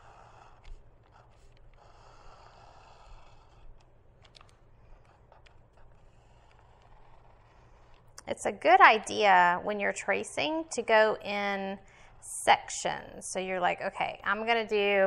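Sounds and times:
overhead fan humming: 0:00.0 - 0:03.4, 0:07.6 - 0:15.0
pencil scratching on paper: 0:00.0 - 0:09.0.

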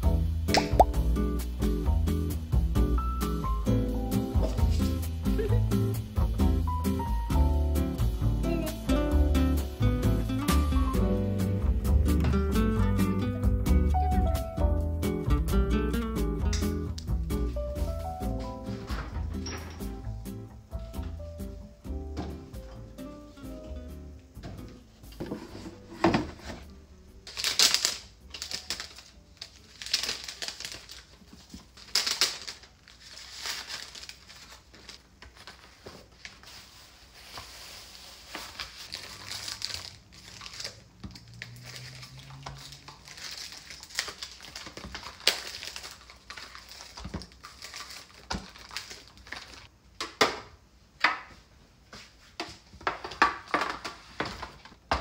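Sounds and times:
plastic packaging crinkling: 0:27.3 - 0:49.7.

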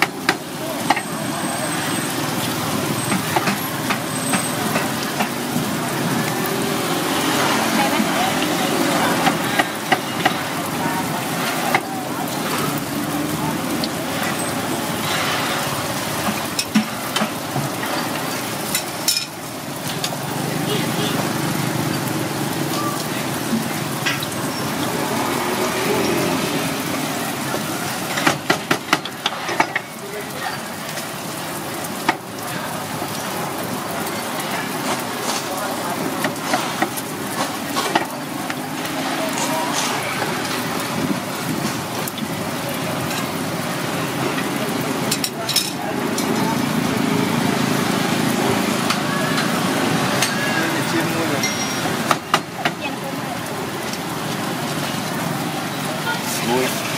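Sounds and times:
deep-frying sizzle: 0:00.0 - 0:56.9.

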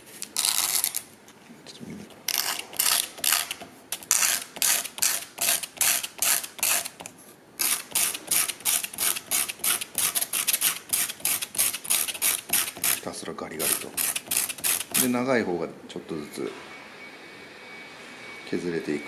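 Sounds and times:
wooden fork rasping on sandpaper: 0:02.4 - 0:07.0, 0:07.6 - 0:15.2.

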